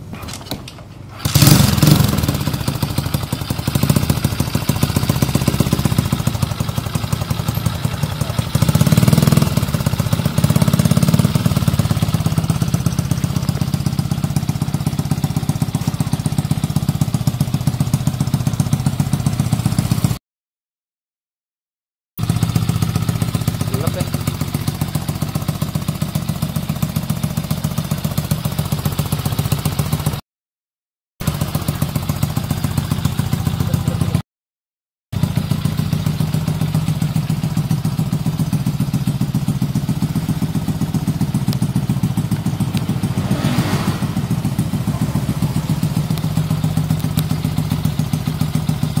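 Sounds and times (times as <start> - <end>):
motorcycle engine idling: 0.3 - 20.2, 22.2 - 30.2, 31.2 - 34.2, 35.2 - 49.0
burst of louder noise: 42.1 - 47.0.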